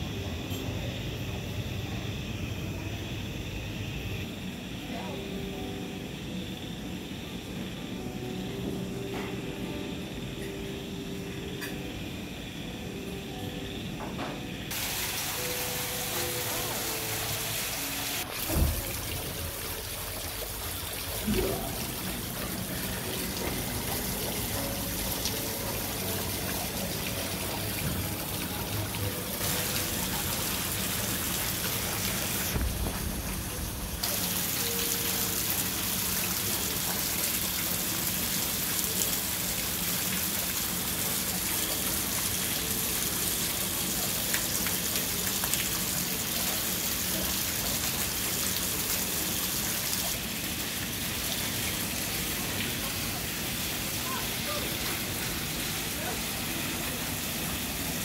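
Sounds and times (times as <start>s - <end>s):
water splashing into pond: 14.7s - 40.8s.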